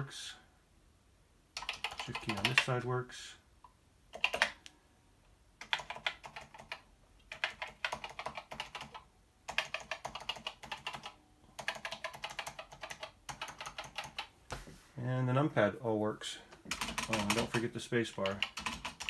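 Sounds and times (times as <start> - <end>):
keyboard keys clicking: 1.6 - 2.7, 4.1 - 4.7, 5.6 - 14.3, 16.7 - 17.6.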